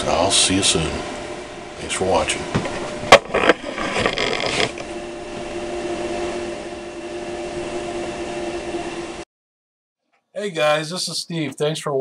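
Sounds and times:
router whine: 2.3 - 9.2.

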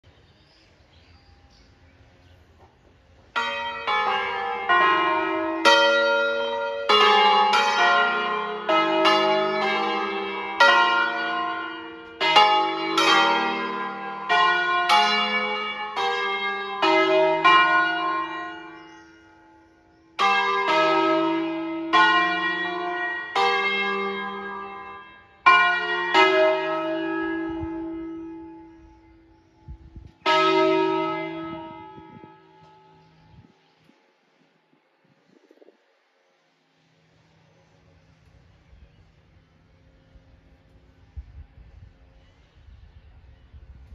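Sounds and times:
church bells ringing: 3.2 - 33.9.

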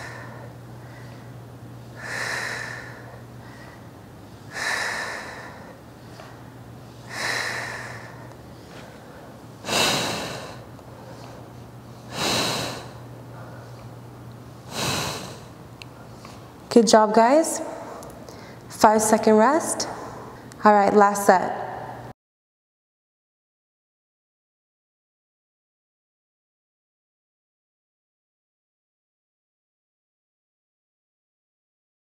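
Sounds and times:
woman breathing hard: 0.0 - 13.8, 14.7 - 16.4, 17.6 - 18.7.

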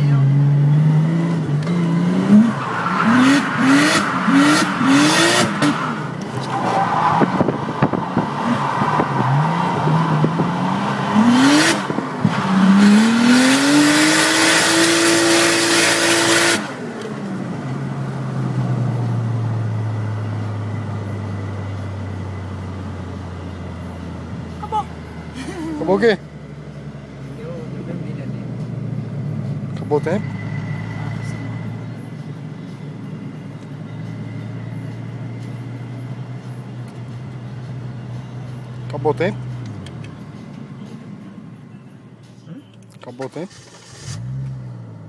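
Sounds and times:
car engine revving: 0.0 - 32.2.

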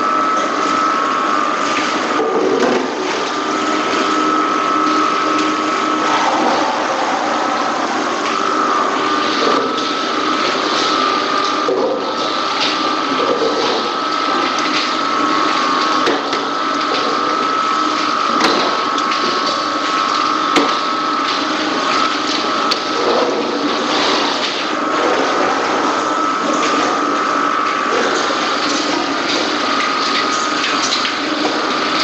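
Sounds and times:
machinery mechanical noise: 0.0 - 32.0
high-pitched whine: 3.4 - 14.4.

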